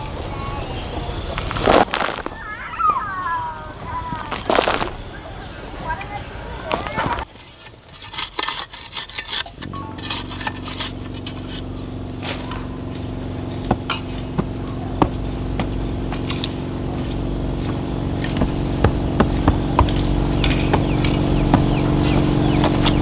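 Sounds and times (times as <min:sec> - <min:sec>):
hoe scraping and chopping soil: 0:01.4 - 0:02.5, 0:04.2 - 0:05.1, 0:06.6 - 0:23.0
steady low hum: 0:09.4 - 0:23.0.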